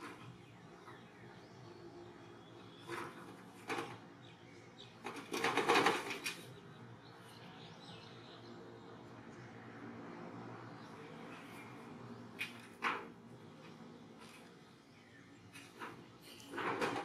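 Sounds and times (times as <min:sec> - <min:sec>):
monkey footfalls on tin roof: 0:05.0 - 0:06.5.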